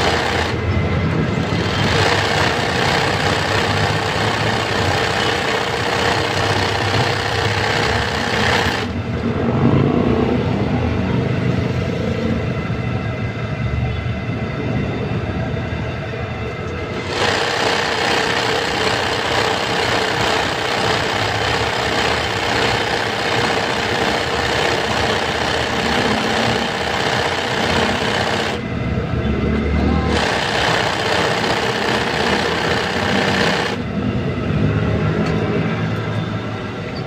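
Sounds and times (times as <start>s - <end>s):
sewing machine stitching: 0.0s - 0.6s, 1.4s - 9.0s, 17.0s - 28.6s, 30.1s - 33.8s.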